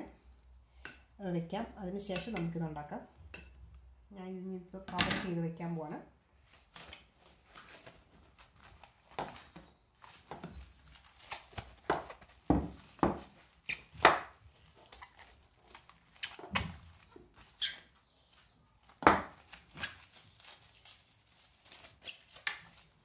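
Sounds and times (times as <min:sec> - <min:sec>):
cling film crinkling and snapping: 0:06.5 - 0:23.0.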